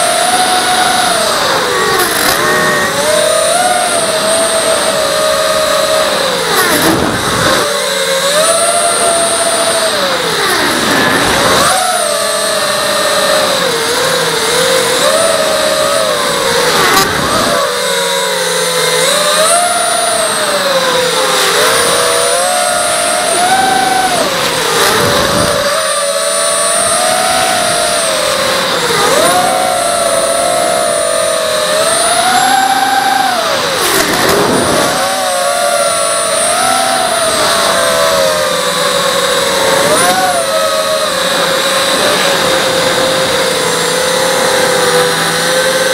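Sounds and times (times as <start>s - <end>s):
quadcopter motors whining: 0.0s - 45.9s.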